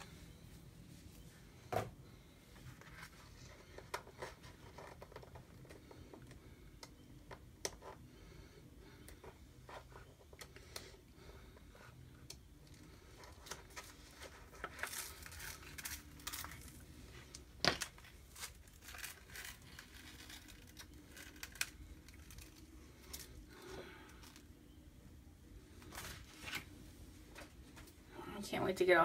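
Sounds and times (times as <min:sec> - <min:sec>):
small crackles: 0:02.1 - 0:24.6
transfer sheet rustling and crinkling: 0:12.5 - 0:24.6, 0:25.6 - 0:28.0.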